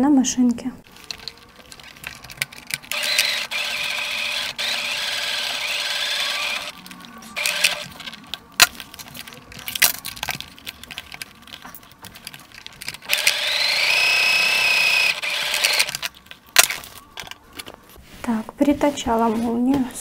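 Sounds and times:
handling clicks and knocks: 0:00.9 - 0:03.3, 0:06.7 - 0:13.1
sewing machine whining: 0:02.8 - 0:08.2, 0:13.0 - 0:16.1.

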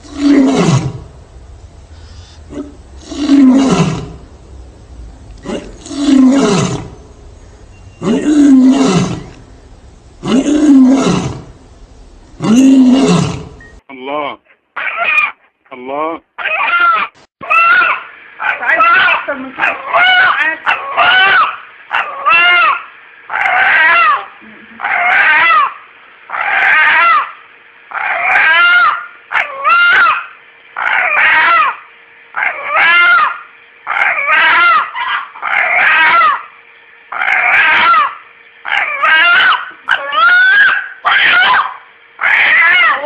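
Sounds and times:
rooster calling: 0:16.4 - 0:43.0.

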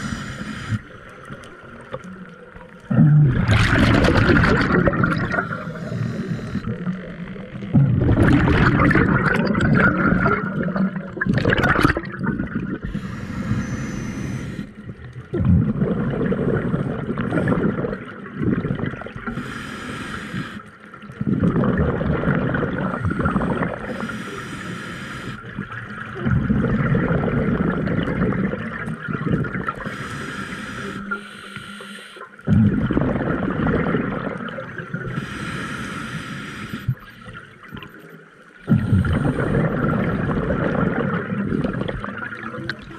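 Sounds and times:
regulator inhale hiss: 0:00.0 - 0:01.1, 0:05.4 - 0:06.8, 0:12.8 - 0:14.8, 0:19.3 - 0:20.8, 0:22.9 - 0:25.5, 0:29.8 - 0:32.4, 0:35.0 - 0:37.4
gurgling exhaled bubbles: 0:02.6 - 0:19.6, 0:21.0 - 0:24.3, 0:25.4 - 0:30.3, 0:32.4 - 0:35.3, 0:38.6 - 0:42.9.

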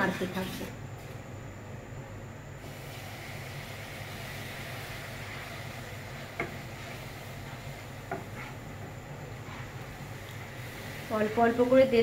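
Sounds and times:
milk hissing in a pan: 0:02.6 - 0:12.0.

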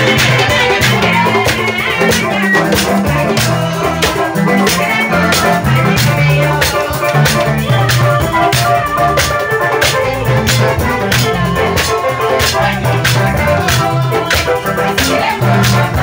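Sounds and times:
moving bass line: 0:00.0 - 0:11.9
loud dance music from live band: 0:00.0 - 0:16.0
steady drum beat: 0:00.0 - 0:16.0.

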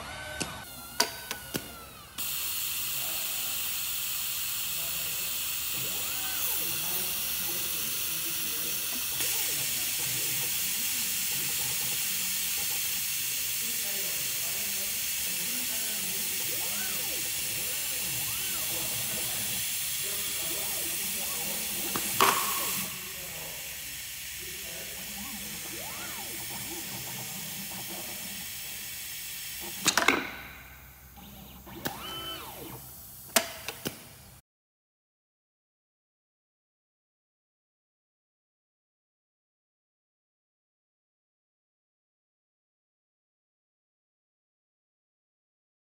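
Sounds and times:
motor whines rising and falling: 0:00.0 - 0:02.2, 0:05.7 - 0:11.8, 0:14.4 - 0:29.0, 0:29.6 - 0:33.1
steady hiss: 0:02.3 - 0:30.0
sharp pneumatic clicks: 0:14.5 - 0:24.4, 0:25.0 - 0:34.1.

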